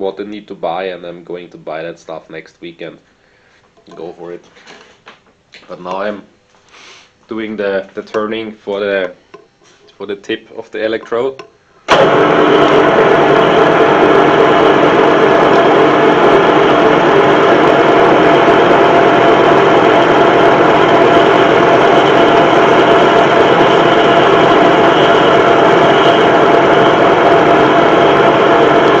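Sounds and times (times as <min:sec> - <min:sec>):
metal lathe humming: 0:07.5 - 0:29.0.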